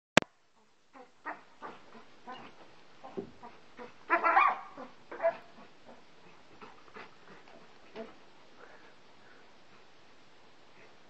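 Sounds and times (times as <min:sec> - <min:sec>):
dogs yipping: 0:01.0 - 0:06.0.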